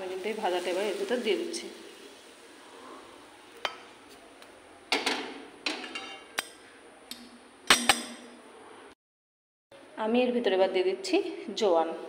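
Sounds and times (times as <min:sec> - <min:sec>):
metal utensils scraping cookware: 0:05.0 - 0:06.5.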